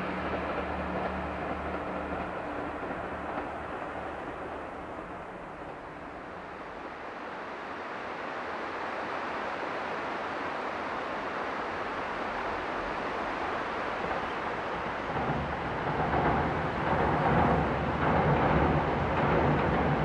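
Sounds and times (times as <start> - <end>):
diesel railcar engine: 0.0 - 7.7, 12.0 - 20.0
steady rushing noise: 0.0 - 20.0.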